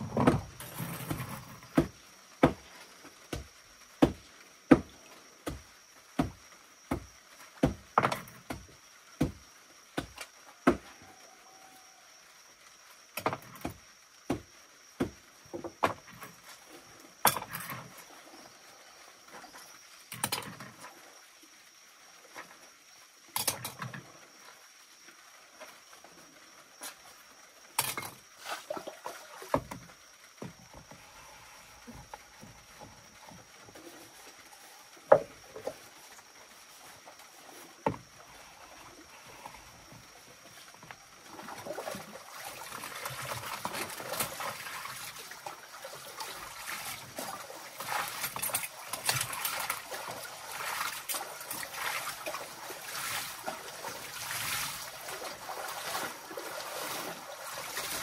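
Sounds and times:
water splashing: 28.4s - 29.9s, 41.0s - 58.0s.

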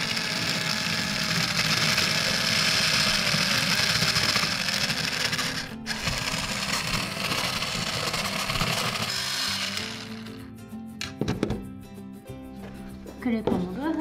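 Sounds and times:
toy hand mixer whirring: 0.0s - 10.5s
background music: 1.9s - 14.0s.

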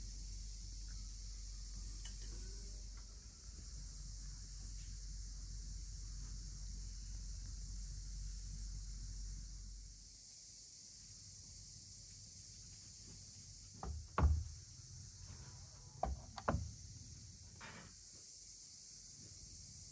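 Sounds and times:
short knocks and taps: 13.8s - 14.5s, 16.0s - 16.7s.

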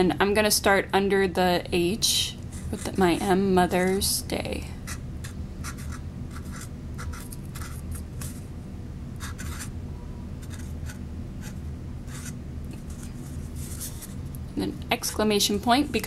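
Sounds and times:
faint low hum: 0.0s - 16.0s
marker scratching on paper: 4.9s - 8.4s, 9.2s - 9.7s, 10.4s - 14.2s.

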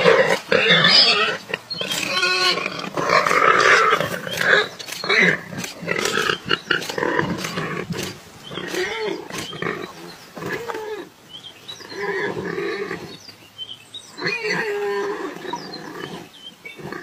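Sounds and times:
leopard growling and snarling: 0.0s - 11.1s.

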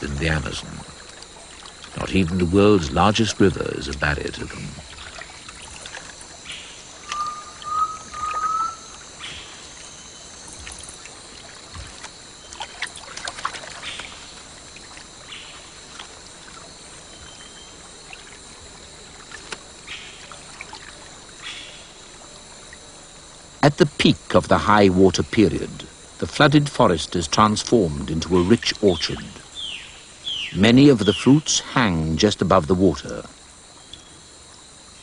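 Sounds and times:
water splashing: 0.0s - 22.9s
steady hiss: 0.0s - 35.0s
rising whistled call: 7.0s - 8.9s.

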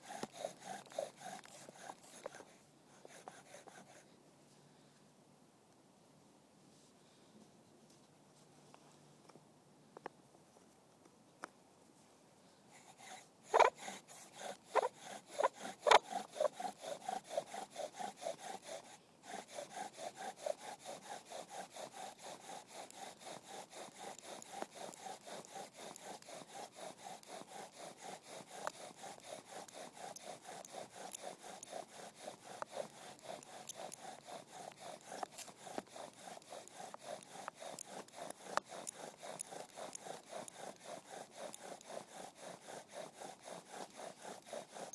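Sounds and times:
bow drill spindle squeaking: 12.8s - 44.9s.

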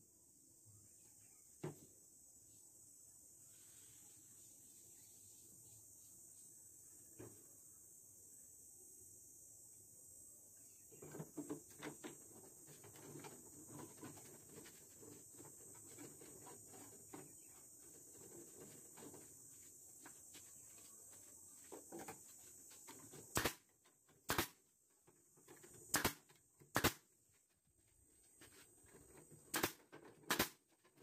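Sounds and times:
pneumatic nail gun shots: 23.3s - 24.6s, 25.8s - 27.1s, 29.5s - 30.7s.

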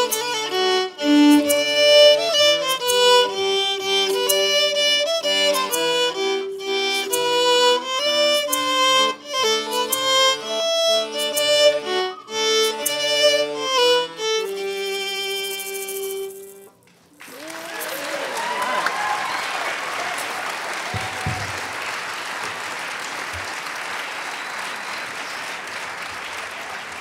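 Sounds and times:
accordion: 0.0s - 16.8s
fiddle: 0.0s - 16.8s.

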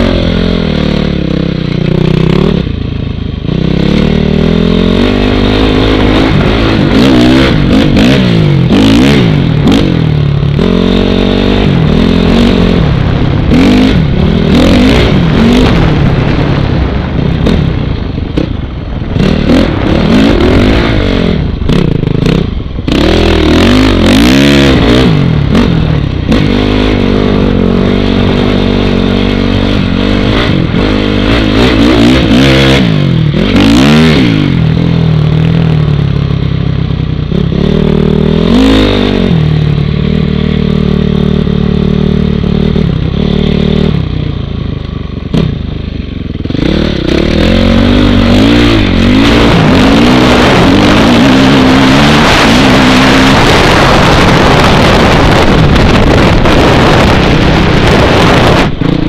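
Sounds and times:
motorcycle engine revving: 0.0s - 59.0s
wind buffeting microphone: 46.3s - 59.0s.

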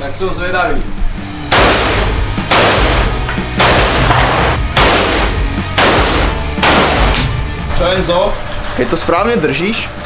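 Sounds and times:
rifle shots echoing indoors: 1.5s - 7.3s.

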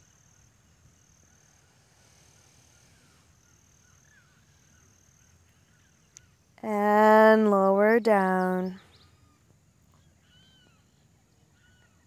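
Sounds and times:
soft bird chirps: 8.4s - 12.0s.

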